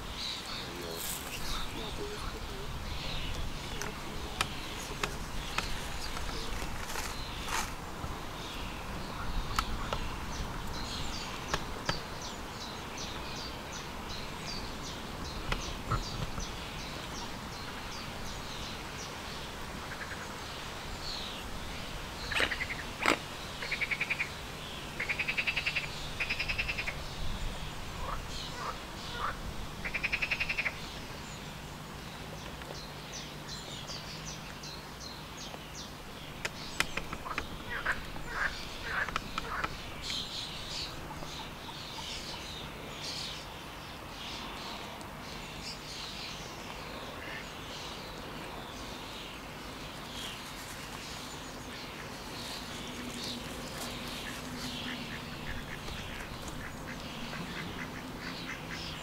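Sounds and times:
waterfowl calling: 28.0s - 30.8s, 37.1s - 39.9s, 53.7s - 59.0s.

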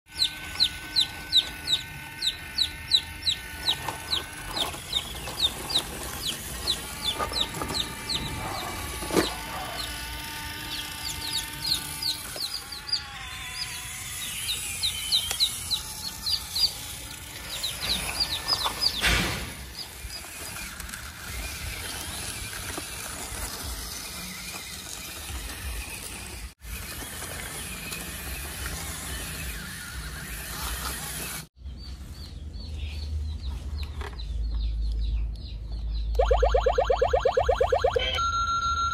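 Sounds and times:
chickens peeping: 0.1s - 23.0s.

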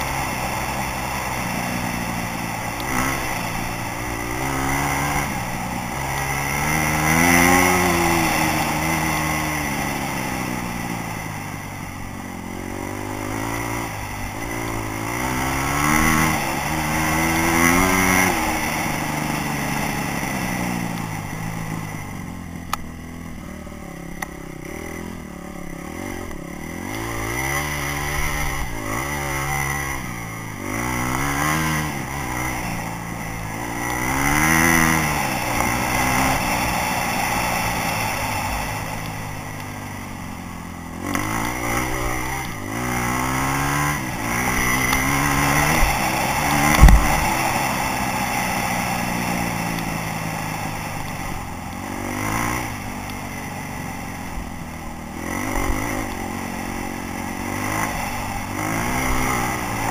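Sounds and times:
dirt bike engine revving: 0.0s - 59.9s
sharp thump: 46.7s - 47.4s.

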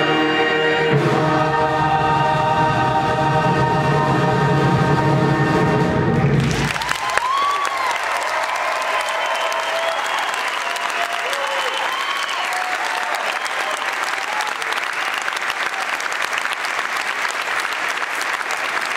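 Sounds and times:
audience applauding: 6.3s - 18.9s
people cheering: 6.4s - 18.9s.

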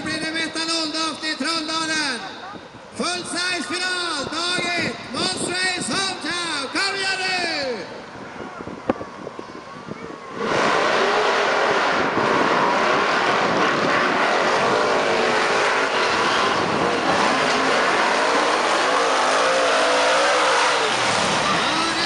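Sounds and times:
monster truck engines revving: 9.0s - 22.0s.

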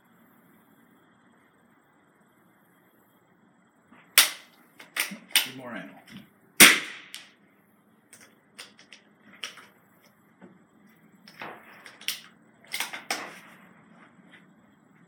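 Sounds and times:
cartridges and rifle clicking: 4.2s - 5.6s, 6.6s - 7.3s, 8.2s - 9.7s, 11.3s - 13.2s.

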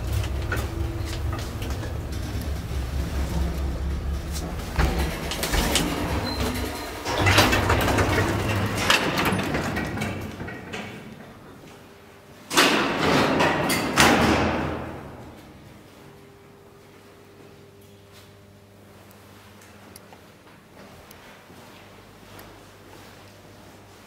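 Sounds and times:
lift doors clattering shut: 0.0s - 11.6s, 12.5s - 15.3s
lift doors sliding: 0.0s - 11.6s
lift cab humming: 0.0s - 12.2s.

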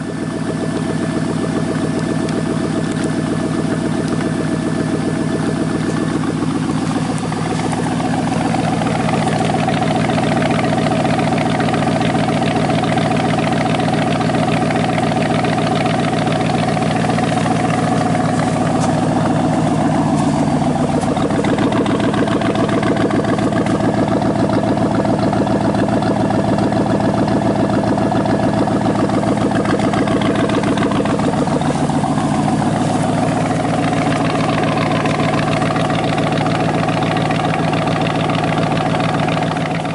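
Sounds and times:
loud engine idling: 0.0s - 39.9s.

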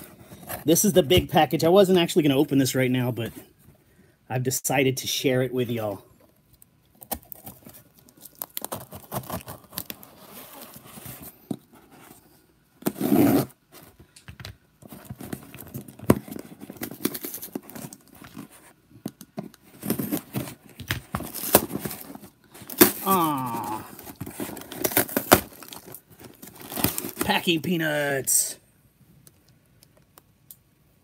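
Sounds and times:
packing tape tearing: 7.0s - 10.8s, 15.2s - 18.6s, 19.8s - 27.4s.

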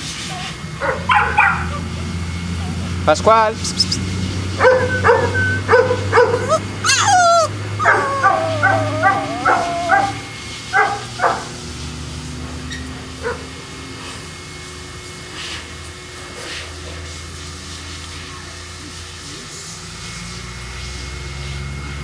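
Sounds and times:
dog barking and yipping: 0.8s - 1.8s, 4.6s - 11.5s, 13.2s - 13.5s
low steady hum: 1.9s - 11.7s
dog whining: 3.6s - 11.4s.

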